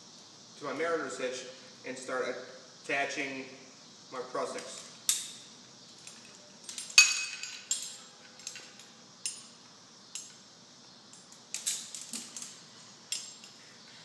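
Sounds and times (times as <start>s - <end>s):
metal carabiners clinking: 4.5s - 10.4s, 11.1s - 13.6s.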